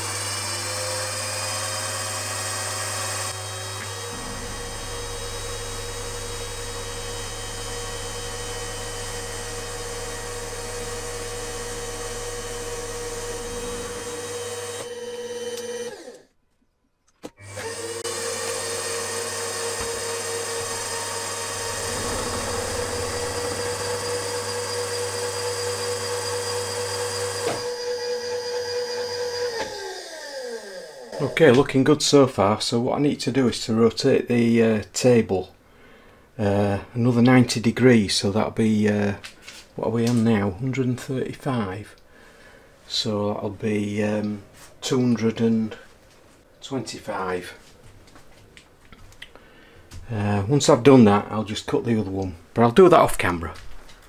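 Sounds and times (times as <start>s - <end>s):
milling machine spindle whine: 0.0s - 16.2s, 17.4s - 31.4s.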